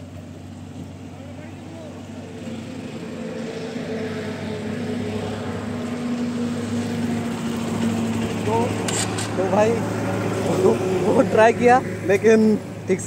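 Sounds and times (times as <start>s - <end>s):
motorcycle engine approaching: 0.0s - 13.0s.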